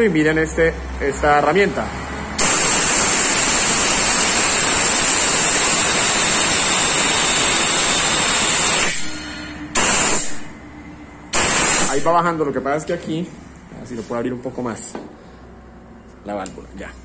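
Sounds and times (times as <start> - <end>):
compressed air hissing: 2.4 - 10.6, 11.3 - 12.2.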